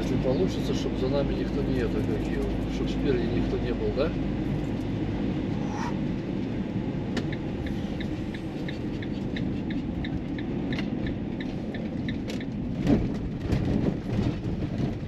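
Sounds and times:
car road rumble: 0.0s - 15.0s
turn signal clicking: 7.1s - 12.7s.

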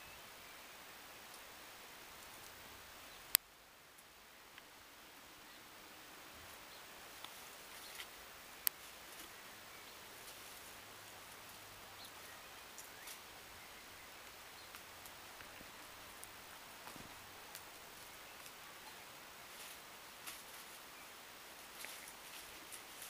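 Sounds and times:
quiet hiss: 0.0s - 23.0s
rustling in leaves: 3.9s - 23.0s.

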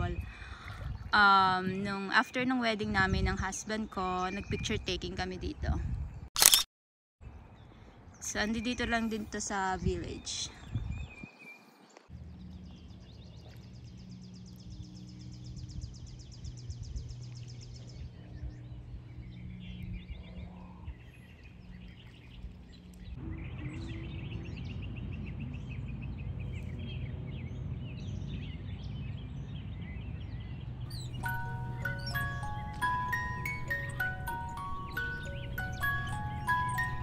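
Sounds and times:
small birds singing: 0.0s - 5.3s, 7.3s - 37.0s.

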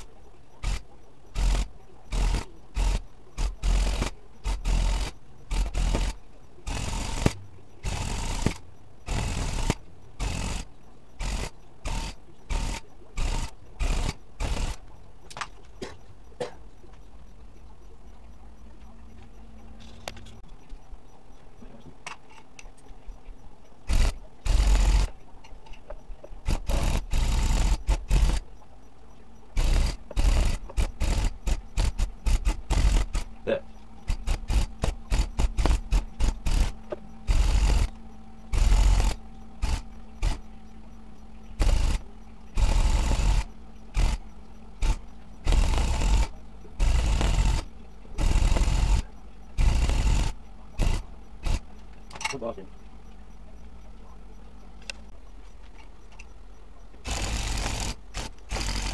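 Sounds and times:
tufting gun punching yarn: 1.4s - 14.8s, 23.9s - 25.1s, 26.5s - 28.4s, 29.6s - 37.9s, 38.5s - 40.4s, 41.6s - 42.0s, 42.6s - 44.2s, 44.8s - 51.6s.

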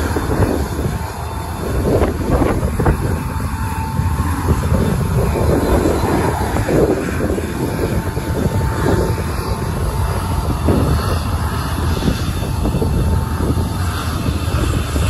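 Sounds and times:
faint high whine: 0.0s - 15.0s
jet engines roaring: 0.0s - 15.0s.

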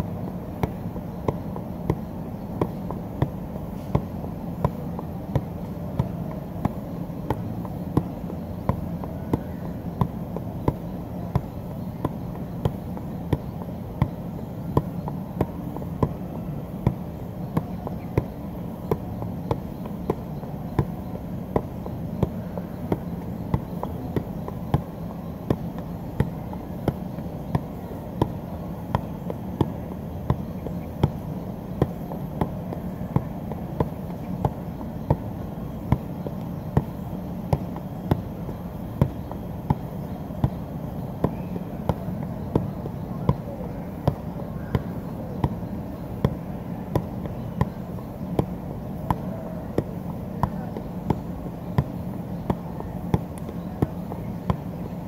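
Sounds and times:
ball thuds on feet: 0.6s - 10.8s, 39.0s - 39.8s.

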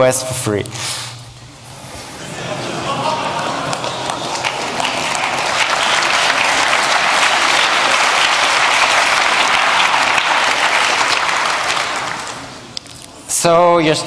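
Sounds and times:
audience applauding: 2.2s - 12.8s.

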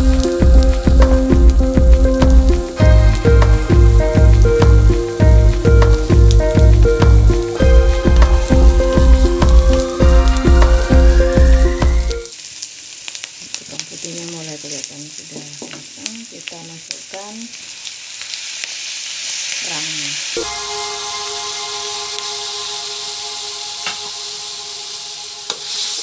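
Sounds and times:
background music with strong beat: 0.0s - 12.3s, 20.4s - 26.0s
food sizzling in a wok: 0.0s - 26.0s.

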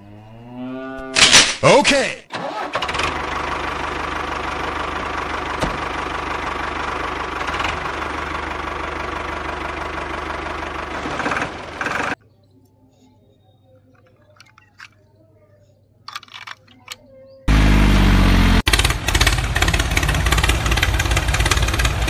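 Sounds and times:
tractor diesel engine running: 2.3s - 12.2s, 17.5s - 22.0s
plastic toy parts clicking: 13.8s - 15.1s, 16.0s - 17.1s.

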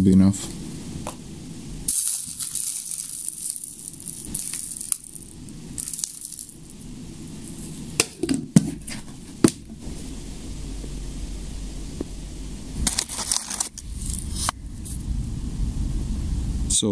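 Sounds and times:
powder trickling into casing: 1.9s - 9.7s.

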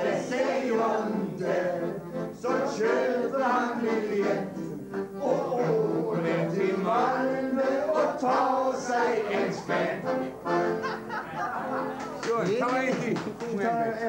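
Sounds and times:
accordion: 0.0s - 14.0s
man singing: 12.3s - 14.0s.

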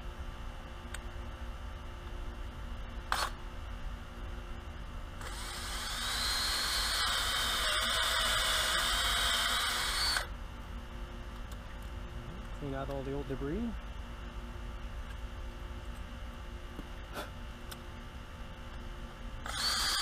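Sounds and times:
cordless drill whining: 5.2s - 10.3s, 19.4s - 20.0s.

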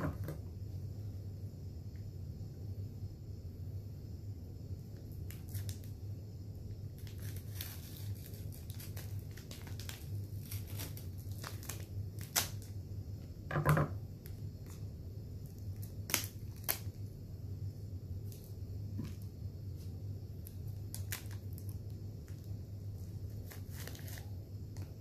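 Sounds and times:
steady low hum: 0.0s - 25.0s
scissors snipping crinkly wrapper: 7.0s - 12.8s, 15.4s - 17.0s, 20.4s - 25.0s.

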